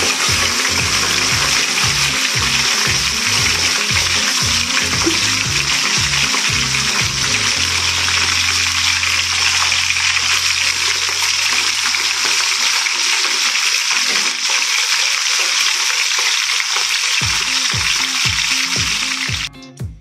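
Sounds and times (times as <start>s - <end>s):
background music: 0.0s - 11.9s, 17.2s - 20.0s
fish sizzling in hot oil: 0.0s - 19.5s.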